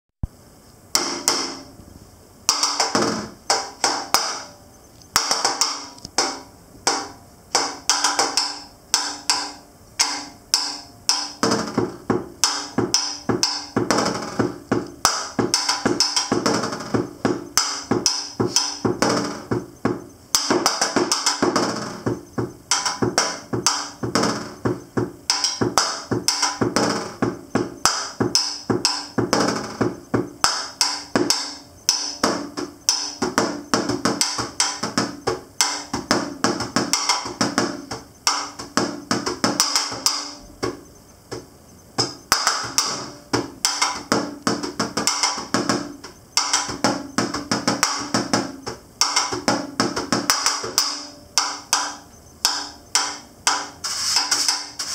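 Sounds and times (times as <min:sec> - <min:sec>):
snare drum solo: 0:05.2 - 0:40.8.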